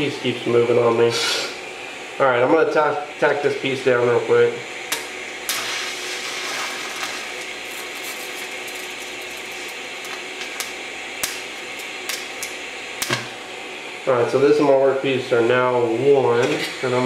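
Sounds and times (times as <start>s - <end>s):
welding arc hiss: 4.4s - 17.0s.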